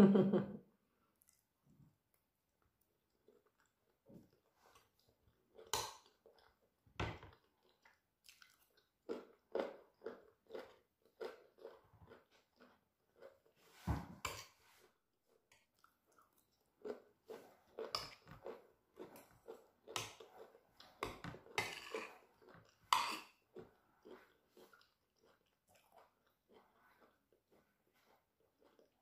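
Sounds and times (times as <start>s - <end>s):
person chewing food: 1.0s - 29.0s.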